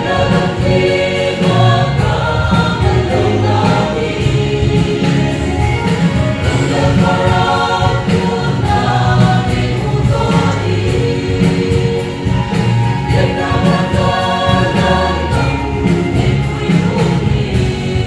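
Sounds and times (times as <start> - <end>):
choir singing a hymn: 0.0 - 18.0.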